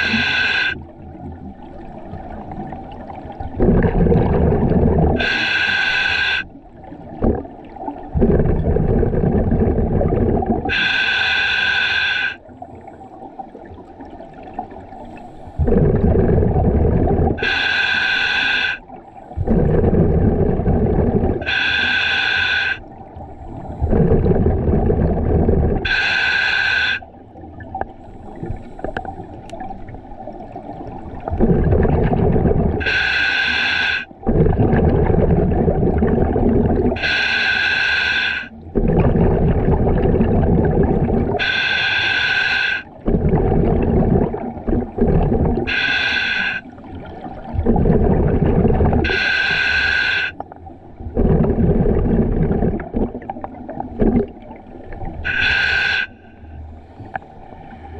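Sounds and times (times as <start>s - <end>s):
hissing regulator inhale: 0.0s - 0.9s, 5.0s - 6.5s, 10.6s - 13.1s, 17.3s - 27.1s, 32.4s - 34.5s, 36.8s - 38.6s, 41.1s - 46.9s, 48.9s - 50.6s, 55.1s - 57.9s
bubbling exhale underwater: 1.7s - 12.9s, 13.6s - 56.2s.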